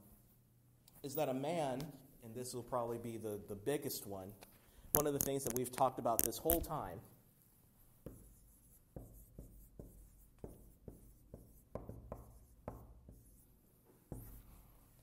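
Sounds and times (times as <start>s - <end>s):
pen tapping and stroking: 5.0s - 6.9s, 8.0s - 13.4s, 14.1s - 14.5s.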